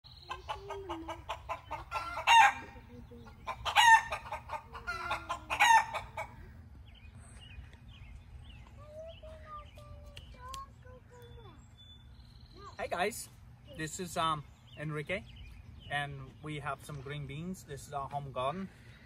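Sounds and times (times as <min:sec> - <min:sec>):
chicken clucking: 0:00.2 - 0:06.5
faint songbird chirps: 0:06.4 - 0:19.0.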